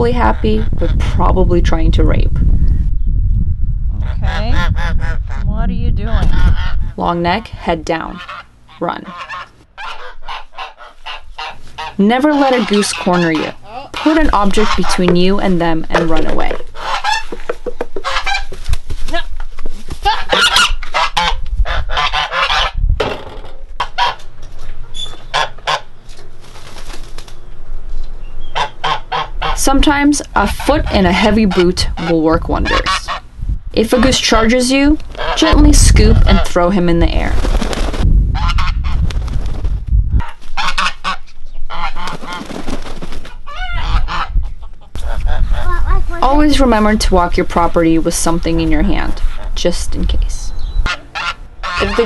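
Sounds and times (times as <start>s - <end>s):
goose honking: 6.3s - 17.4s, 18.0s - 18.5s, 20.0s - 22.8s, 23.8s - 24.3s, 25.2s - 25.9s, 28.5s - 36.8s, 40.2s - 42.5s, 43.5s - 45.3s, 50.8s - 52.0s.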